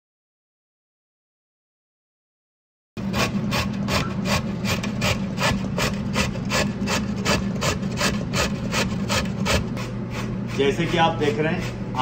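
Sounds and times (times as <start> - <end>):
carrot rasping on grater: 3.0 - 12.0
steady low hum: 3.0 - 12.0.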